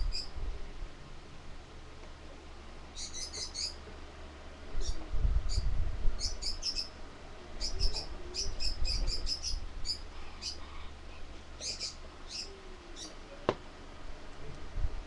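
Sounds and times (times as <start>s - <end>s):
small birds chirping: 0.0s - 0.4s, 2.9s - 3.9s, 4.8s - 13.5s.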